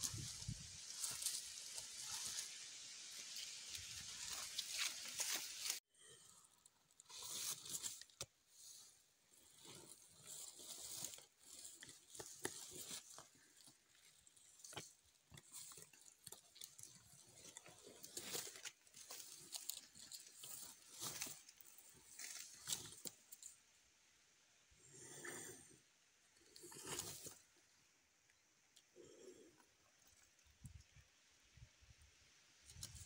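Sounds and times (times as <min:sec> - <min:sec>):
faint crunching and tearing: 0:00.0 - 0:23.7, 0:26.4 - 0:27.6, 0:32.6 - 0:33.0.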